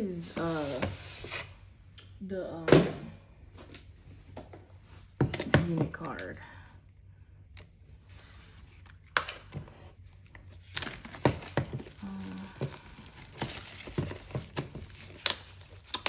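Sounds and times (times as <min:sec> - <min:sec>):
shrink wrap crinkling: 0:08.0 - 0:16.0.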